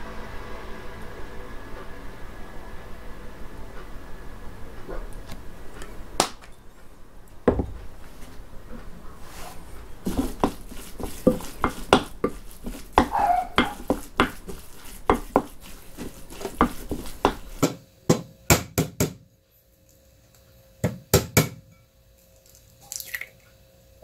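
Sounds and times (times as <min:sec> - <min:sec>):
knife knocking against board: 0:13.0 - 0:14.5.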